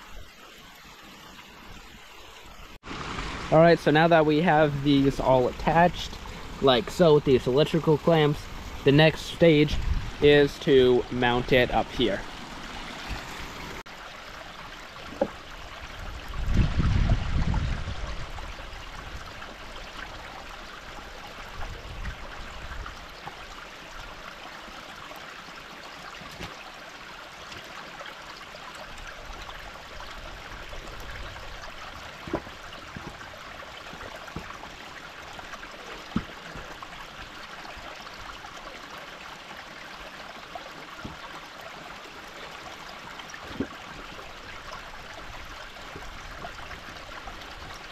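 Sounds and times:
stream running water: 0:00.0 - 0:47.9
wooden knocks: 0:32.2 - 0:33.2.

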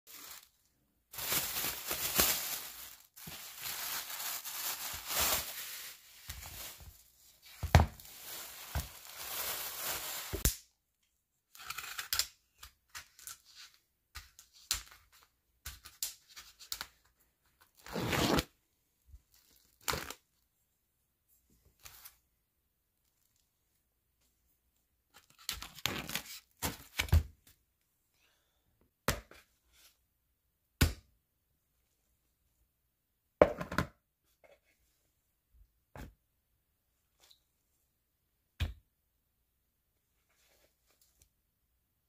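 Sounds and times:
plastic bag rustling: 0:00.1 - 0:10.4.

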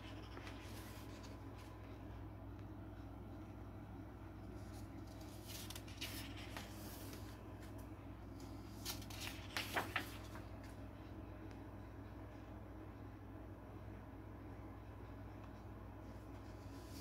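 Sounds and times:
book pages turning: 0:00.0 - 0:01.7, 0:04.6 - 0:10.8
page flaps: 0:05.4 - 0:07.3, 0:08.7 - 0:10.4.

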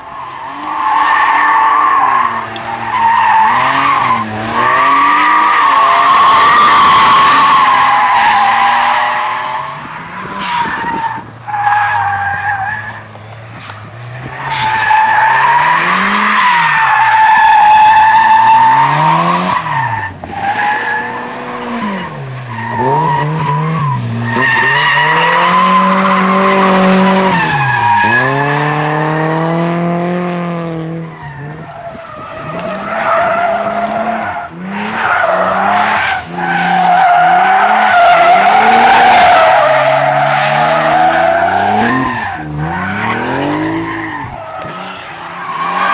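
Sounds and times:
car engines revving: 0:00.0 - 0:45.9
tyres squealing: 0:31.0 - 0:45.9.

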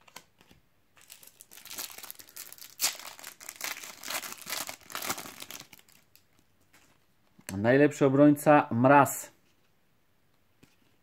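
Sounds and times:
foil wrapper crinkling: 0:01.0 - 0:06.2
foil wrapper ripping: 0:01.0 - 0:06.2.

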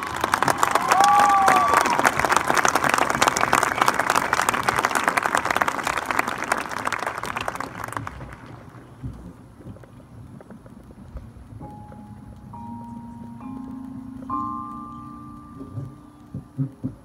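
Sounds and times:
crowd applauding: 0:00.0 - 0:08.9.

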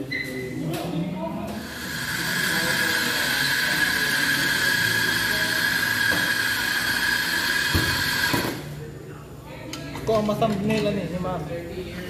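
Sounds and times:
coffee grinder whirring: 0:01.6 - 0:08.6.

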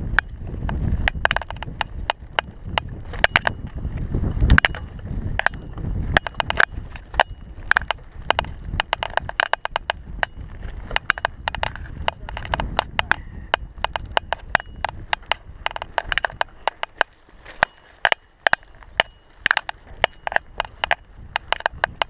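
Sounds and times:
bike rattling clicks and knocks: 0:00.0 - 0:22.0.

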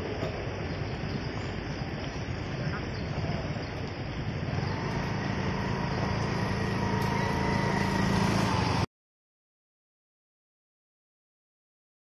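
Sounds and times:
motor scooter engine: 0:04.2 - 0:08.9
thin whine: 0:04.5 - 0:08.9.

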